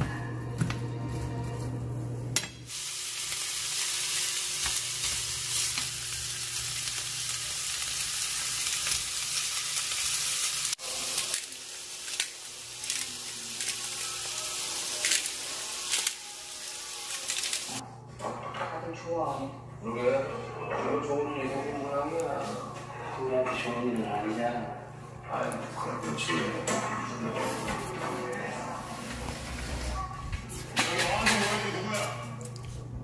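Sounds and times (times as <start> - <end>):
food sizzling in a pan: 2.6 - 17.8.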